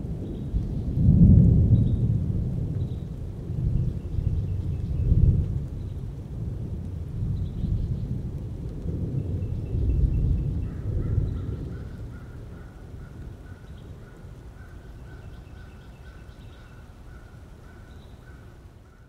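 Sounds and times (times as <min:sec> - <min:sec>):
thunder rumbling: 0:00.0 - 0:16.5.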